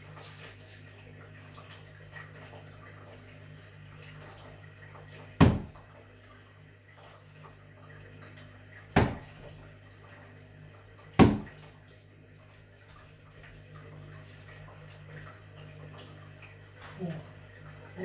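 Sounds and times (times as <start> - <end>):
darts thudding into dartboard: 11.2 - 11.5.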